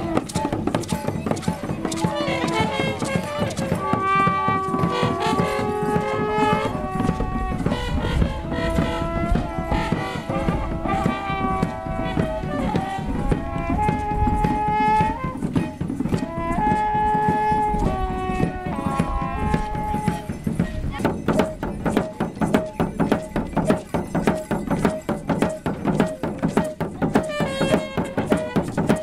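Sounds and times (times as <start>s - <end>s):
horns blowing long notes: 0.0s - 21.0s
drum beating: 0.0s - 29.0s.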